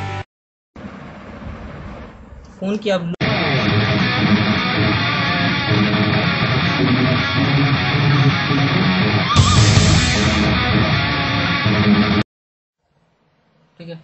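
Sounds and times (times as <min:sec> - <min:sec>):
rock music with electric guitar: 0:03.2 - 0:12.2.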